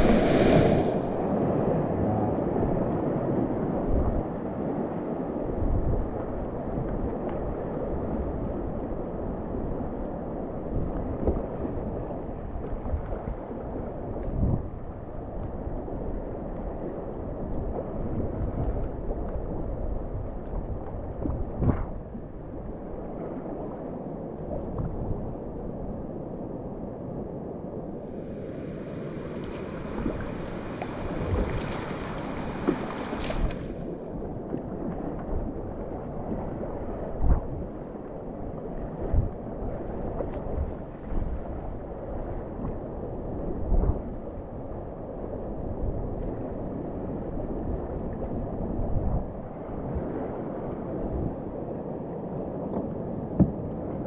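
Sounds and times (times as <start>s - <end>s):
river water rushing: 0.0s - 1.3s, 28.2s - 33.9s
wind buffeting microphone: 0.0s - 4.6s, 16.8s - 22.9s, 28.0s - 37.9s, 38.6s - 50.3s.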